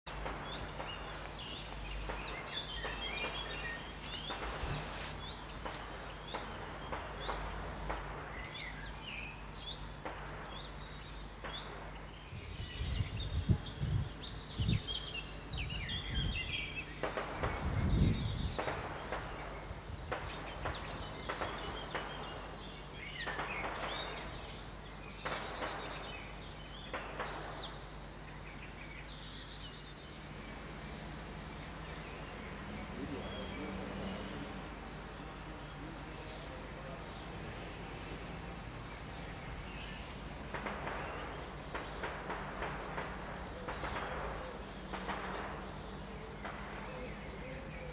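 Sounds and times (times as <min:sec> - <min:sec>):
birdsong: 0:00.0 - 0:47.9
distant rifle shots echoing: 0:00.1 - 0:12.1, 0:17.0 - 0:17.8, 0:18.5 - 0:28.0, 0:40.1 - 0:47.2.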